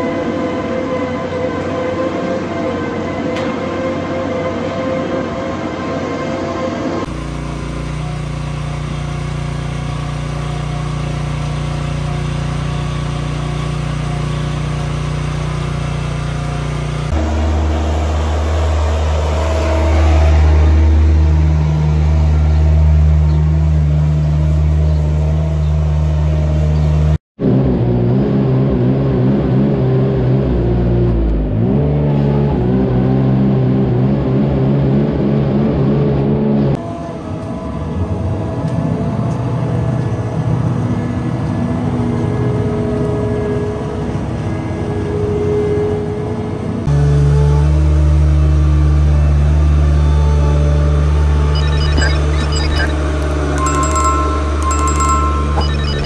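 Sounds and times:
loader engine running: 0:49.0 - 0:56.0
spreader engine wavering pitch: 0:51.4 - 0:56.0.

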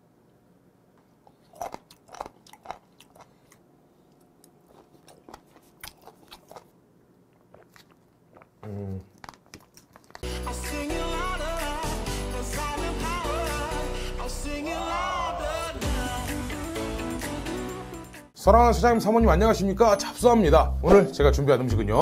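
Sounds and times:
chewing with wet smacks: 0:01.3 - 0:10.2.

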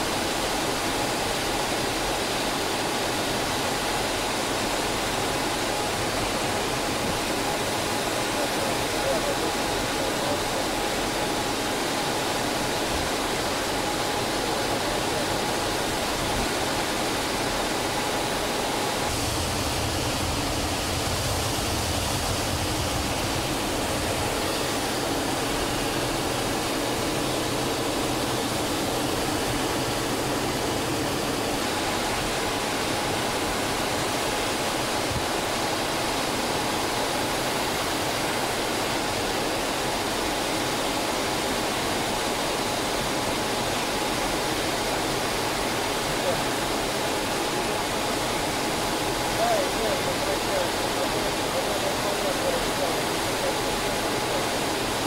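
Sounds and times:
jet engine noise: 0:00.0 - 0:55.0
air rushing over canopy: 0:18.9 - 0:31.5.

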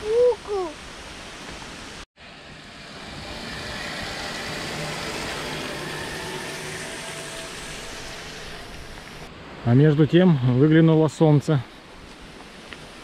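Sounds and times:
motor vehicle passing: 0:02.2 - 0:09.3.

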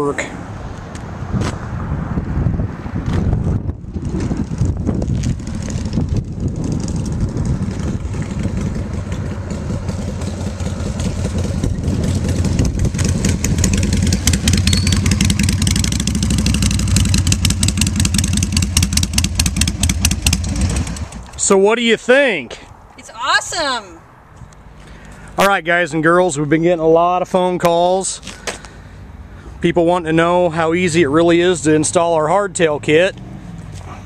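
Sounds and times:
motorcycle engine running: 0:03.8 - 0:21.4.

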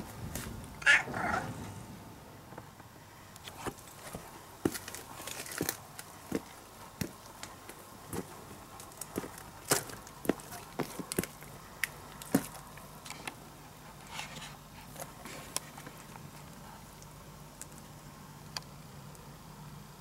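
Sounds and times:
footsteps on dry twigs: 0:03.5 - 0:12.9.

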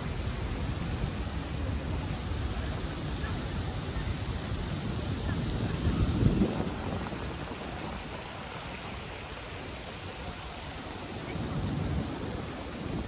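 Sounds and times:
city pedestrian area background noise: 0:00.0 - 0:13.0.

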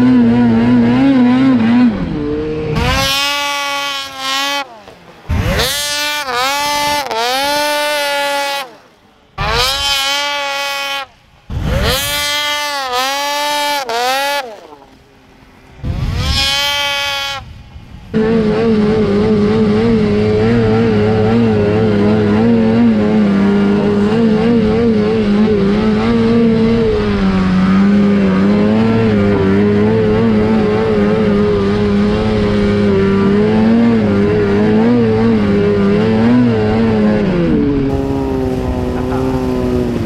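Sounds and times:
snowmobile engine at high revs: 0:00.0 - 0:40.0
snowmobile engine revving up: 0:00.0 - 0:40.0.

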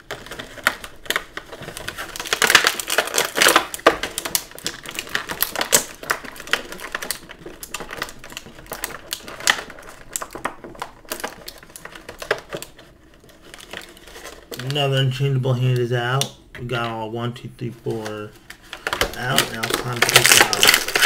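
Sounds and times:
plastic packaging clicking and crackling: 0:00.0 - 0:17.0, 0:17.8 - 0:21.0.

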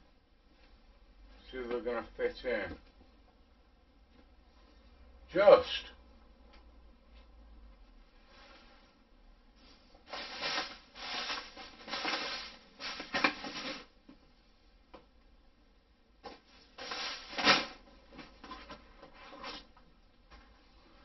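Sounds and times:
plastic bag rustling: 0:09.6 - 0:14.0, 0:16.4 - 0:19.7
plastic plant pots shifting: 0:10.0 - 0:13.9, 0:16.3 - 0:19.8.

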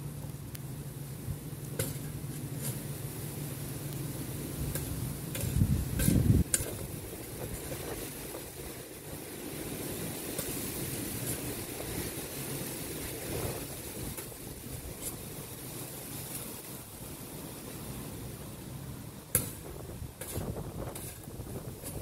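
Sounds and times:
spade clicking in soil: 0:01.7 - 0:02.9, 0:04.6 - 0:08.1, 0:10.3 - 0:12.0, 0:19.3 - 0:22.0
wind buffeting microphone: 0:04.4 - 0:16.9, 0:19.4 - 0:22.0.

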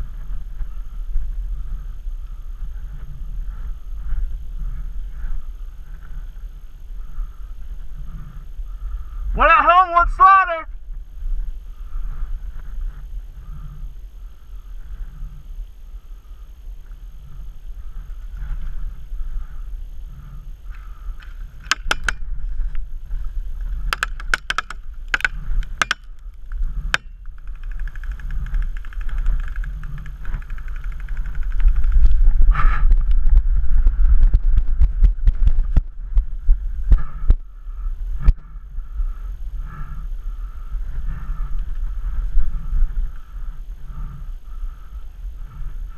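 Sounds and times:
low rumble: 0:10.7 - 0:45.9.

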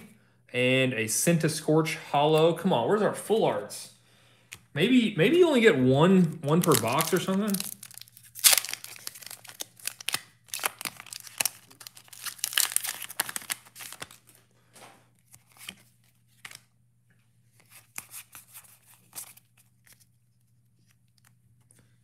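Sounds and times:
trading cards rustling: 0:06.1 - 0:14.5, 0:15.2 - 0:16.7, 0:17.5 - 0:20.1
foil wrapper tearing and crinkling: 0:06.4 - 0:14.4.

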